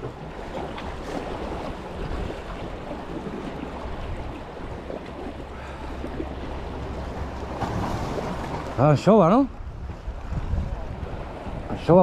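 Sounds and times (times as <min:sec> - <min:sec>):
wind on microphone: 0:00.0 - 0:05.4, 0:09.5 - 0:12.0
sea wash: 0:00.0 - 0:12.0.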